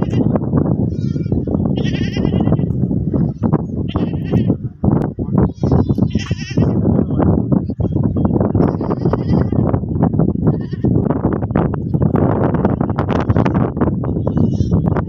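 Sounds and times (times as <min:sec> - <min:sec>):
goats bleating: 0:00.0 - 0:04.6, 0:05.4 - 0:06.8, 0:08.5 - 0:09.7, 0:14.2 - 0:14.9.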